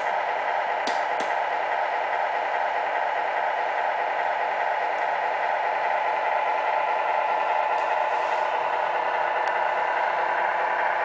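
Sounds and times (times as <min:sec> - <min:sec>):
model truck mechanical drone: 0:00.0 - 0:11.0.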